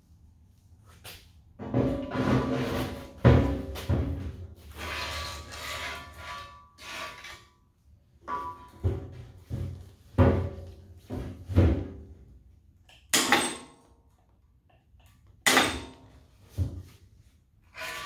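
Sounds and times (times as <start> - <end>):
heavy metal knocks and clunks: 1.6 - 4.5.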